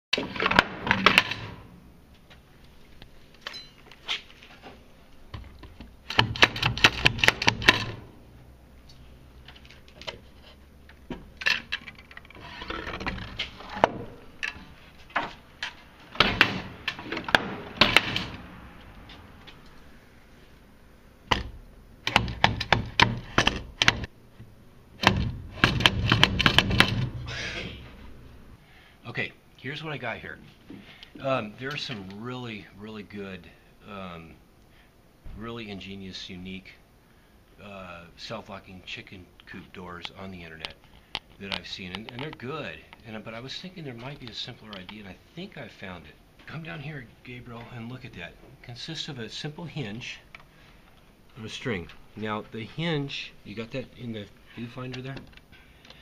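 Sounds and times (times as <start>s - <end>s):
wooden door and latch rattling: 11.1s - 18.4s, 21.3s - 24.1s, 25.0s - 27.2s.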